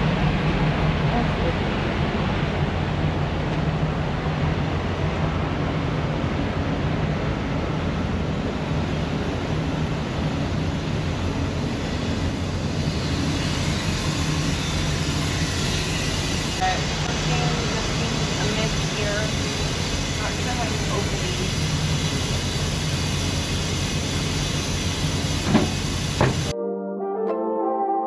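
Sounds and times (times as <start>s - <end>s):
diesel truck idling: 14.2s - 26.5s.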